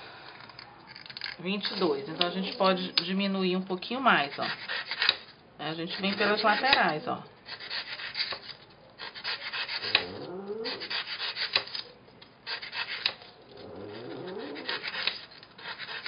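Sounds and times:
knife scraping styrofoam: 4.1 - 16.0
squeaky foam squeals: 13.6 - 15.2.

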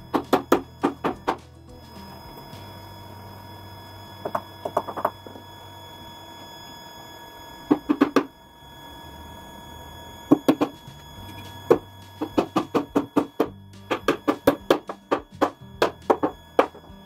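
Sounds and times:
hammer striking nails into plywood: 11.7 - 16.8.

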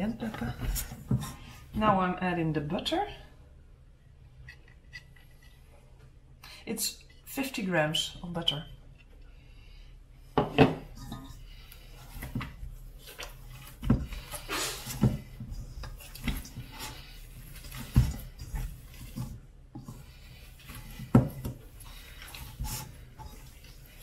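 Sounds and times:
hands rubbing butter into flour: 10.9 - 24.0.

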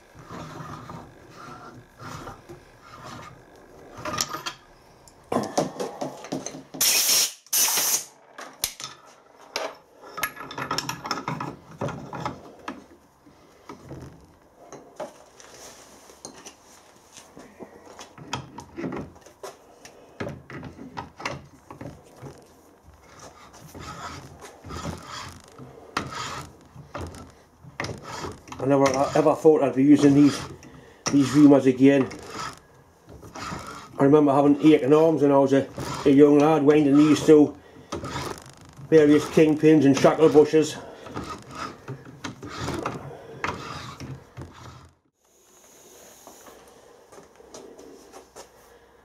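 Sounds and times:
reamer scraping metal: 0.0 - 5.2, 23.0 - 45.0.

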